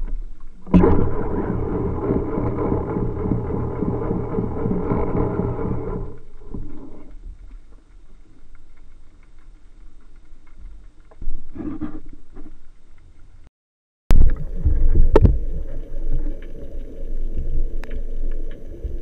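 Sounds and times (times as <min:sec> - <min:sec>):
underwater motor drone: 0:00.0 - 0:09.4, 0:14.2 - 0:19.0
underwater water noise: 0:00.0 - 0:13.5, 0:14.1 - 0:19.0.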